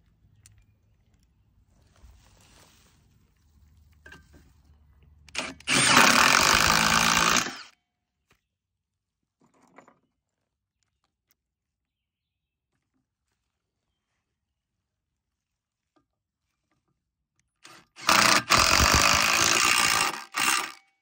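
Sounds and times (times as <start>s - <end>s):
impact driver driving screw: 5.3s - 7.7s, 17.6s - 20.8s.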